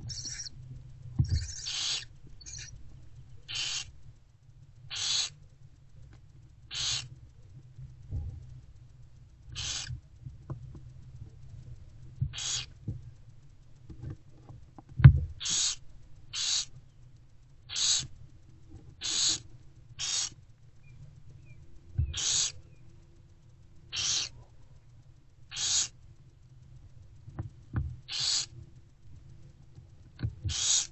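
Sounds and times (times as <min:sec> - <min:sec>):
owl chicks hissing: 0:00.0 - 0:00.5, 0:01.3 - 0:02.7, 0:03.4 - 0:03.9, 0:04.9 - 0:05.4, 0:06.7 - 0:07.1, 0:09.5 - 0:09.9, 0:12.3 - 0:12.7, 0:15.4 - 0:16.7, 0:17.7 - 0:18.1, 0:19.0 - 0:19.4, 0:20.0 - 0:20.4, 0:22.0 - 0:22.6, 0:23.9 - 0:24.4, 0:25.5 - 0:26.0, 0:28.1 - 0:28.5, 0:30.5 - 0:30.9.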